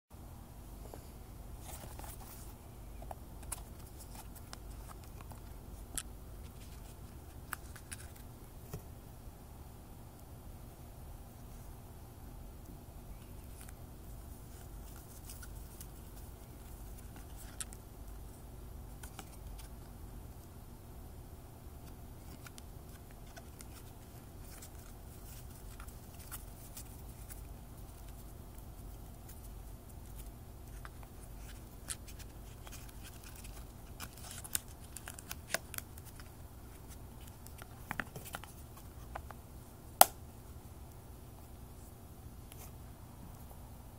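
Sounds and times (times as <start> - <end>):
low steady hum: 0.1 - 43.9
cardstock cards clicking and rustling: 30.6 - 39.4.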